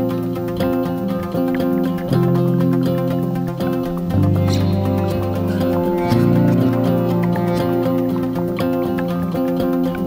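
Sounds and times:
guitar music with beat: 0.0s - 10.0s.

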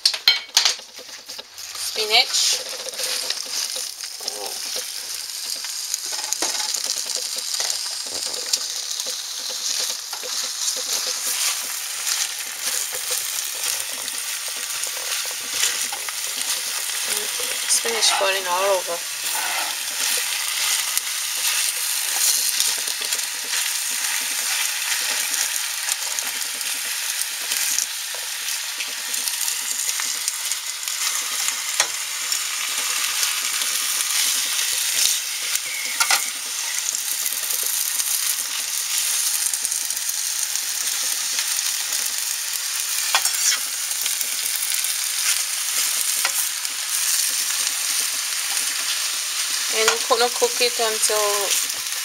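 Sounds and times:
spinach sizzling in a frying pan: 0.0s - 52.0s
utensil clicking against pan: 2.5s - 17.7s.

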